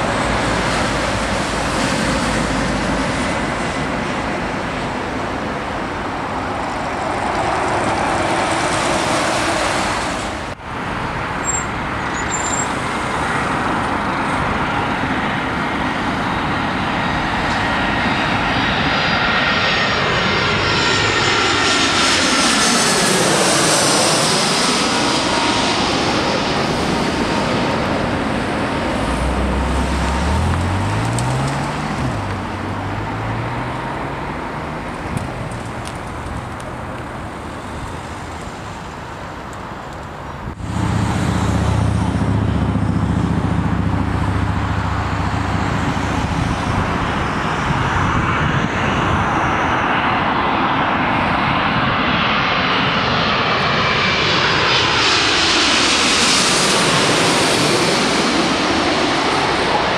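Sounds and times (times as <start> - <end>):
jet airliner engines: 0.0 - 59.9.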